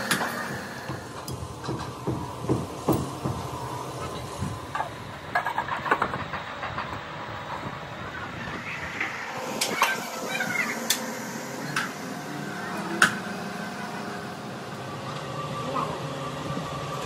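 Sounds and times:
workshop hum: 0:00.0 - 0:17.0.

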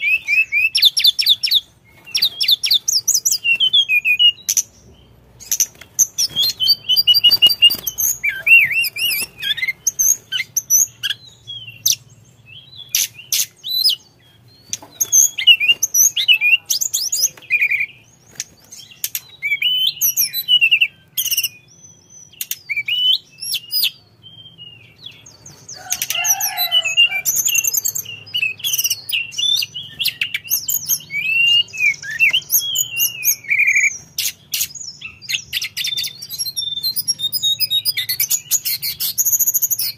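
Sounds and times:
bird singing whistled trills: 0:00.0 - 0:39.9
sharp bird clicks: 0:22.3 - 0:23.0.

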